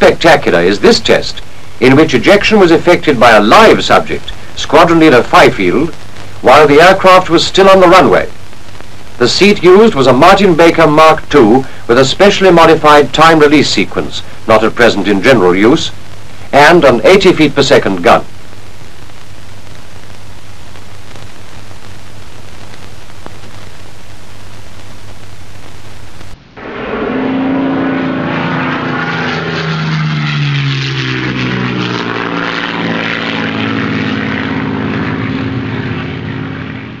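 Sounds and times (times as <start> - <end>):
film soundtrack hiss and hum: 0.0 - 26.6
aircraft engine: 26.5 - 37.0.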